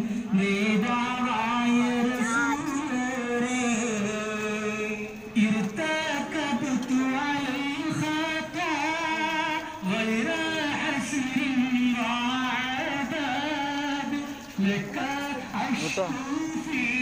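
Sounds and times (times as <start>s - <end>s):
man chanting: 0.2s - 17.0s.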